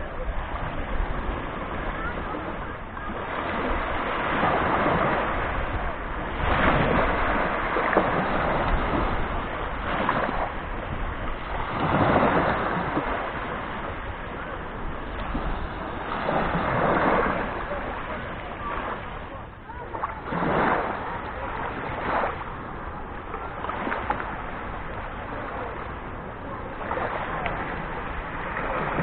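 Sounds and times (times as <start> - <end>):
small waves breaking on beach: 0.0 - 29.0
wind rumbling on microphone: 0.0 - 29.0.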